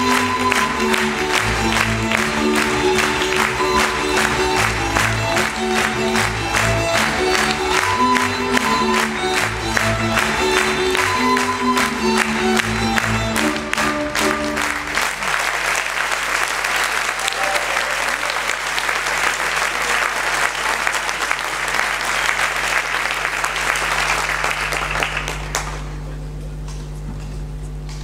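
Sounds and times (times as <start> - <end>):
audience applauding: 0.0 - 26.2.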